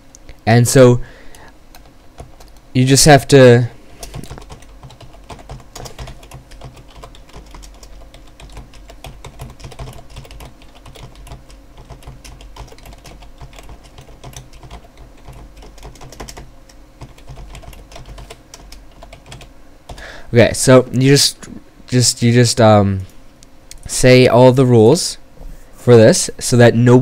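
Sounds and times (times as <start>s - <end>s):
computer keyboard typing: 1.3s - 2.6s, 4.0s - 20.0s.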